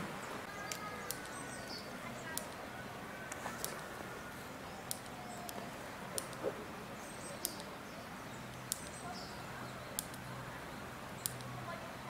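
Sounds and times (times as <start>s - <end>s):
sharp high ticks: 2.2s - 2.6s, 4.8s - 6.5s, 7.4s - 7.7s, 8.5s - 9.0s, 11.2s - 11.6s.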